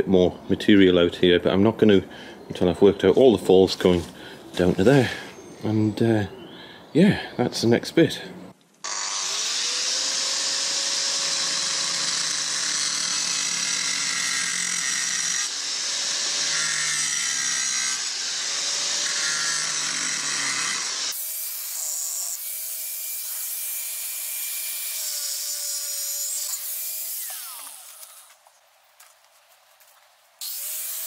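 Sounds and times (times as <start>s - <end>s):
angle grinder motor whine: 8.8s - 28.3s.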